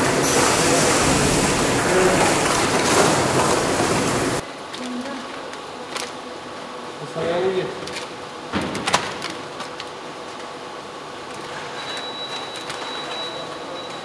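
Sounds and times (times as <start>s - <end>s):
packaging machinery din: 0.0s - 4.4s, 11.3s - 14.0s.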